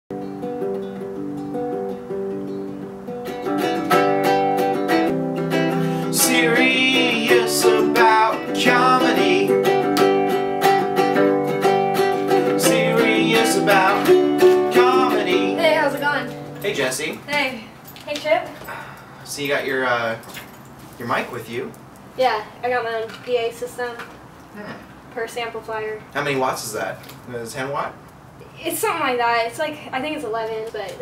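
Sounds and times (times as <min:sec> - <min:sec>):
ukulele strummed and picked: 0:00.1 - 0:17.0
person singing high: 0:06.0 - 0:09.7, 0:12.4 - 0:16.3.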